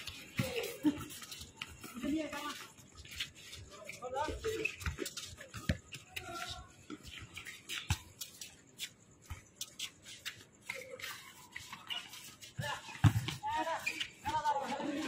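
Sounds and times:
shoes scuffing on hard court: 0.0 - 15.0.

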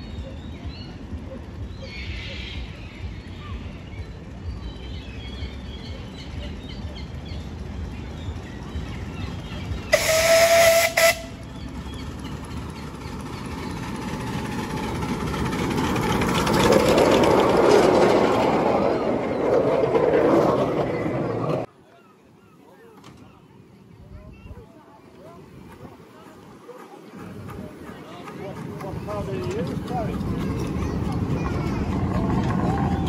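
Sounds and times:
train wheels on track: 0.0 - 21.7, 22.9 - 33.0
locomotive whistle blast: 9.9 - 11.4.

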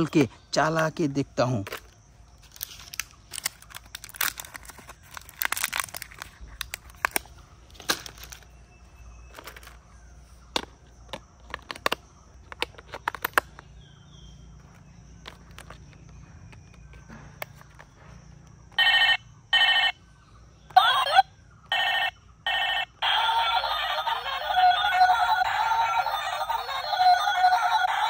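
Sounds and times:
plastic blister pack crinkling: 1.7 - 8.5, 11.4 - 13.7
batteries clicking into compartment: 9.3 - 9.9, 10.5 - 13.7, 14.6 - 18.0.

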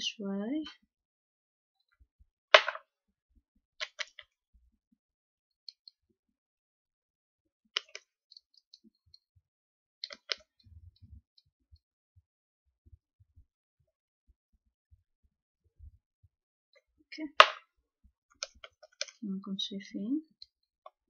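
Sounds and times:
soft low thumps: 14.3 - 16.3.

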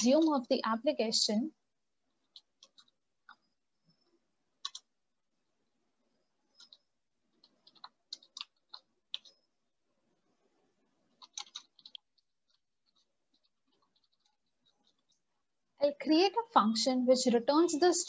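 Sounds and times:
keystrokes on computer keyboard: 2.1 - 3.6, 4.6 - 5.0, 6.5 - 9.5, 11.1 - 15.2.

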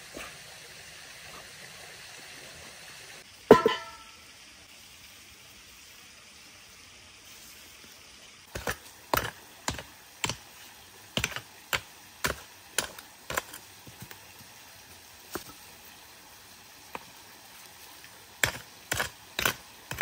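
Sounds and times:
pick striking dry earth: 8.5 - 10.4, 11.2 - 14.2, 18.4 - 20.0.

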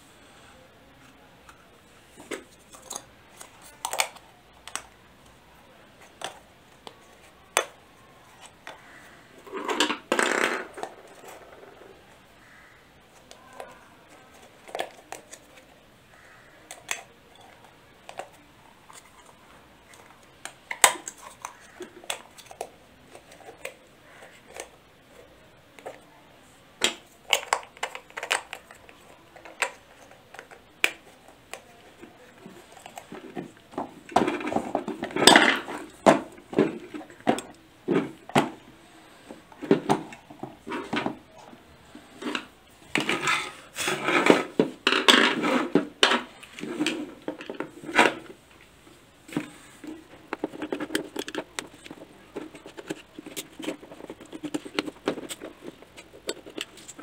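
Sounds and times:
rubber rubbing scrape: 43.2 - 44.6
plastic clicks and taps: 49.3 - 57.0.

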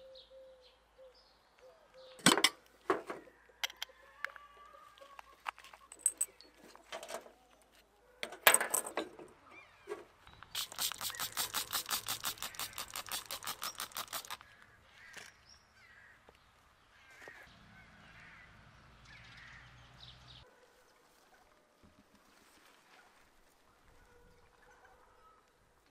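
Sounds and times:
spray bottle squirting: 10.4 - 14.6
sharp clatter: 10.6 - 14.4.

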